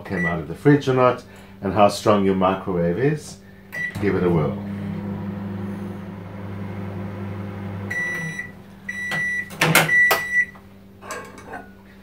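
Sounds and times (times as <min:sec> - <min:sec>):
microwave beeps: 0:00.1 - 0:00.4, 0:03.7 - 0:10.6
microwave oven humming: 0:03.5 - 0:12.0.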